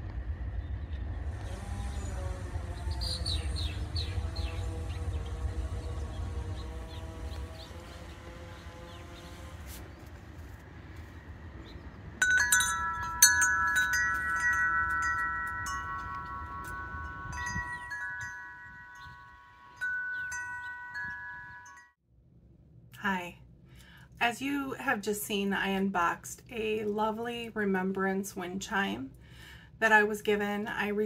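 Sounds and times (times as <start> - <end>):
low rumble: 0.0 - 7.8, 12.2 - 21.8
metal wind chime ringing: 12.2 - 22.0.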